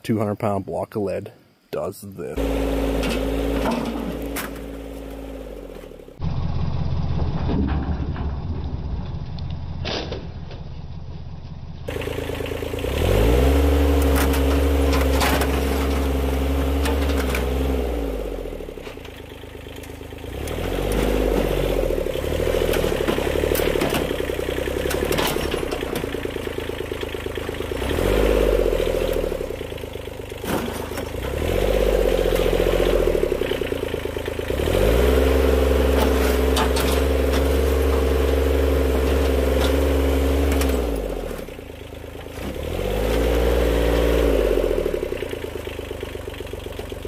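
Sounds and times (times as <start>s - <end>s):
tractor diesel engine revving: 2.3s - 7.4s, 11.9s - 47.0s
metal knocks and scrapes: 2.9s - 5.1s, 35.9s - 38.1s.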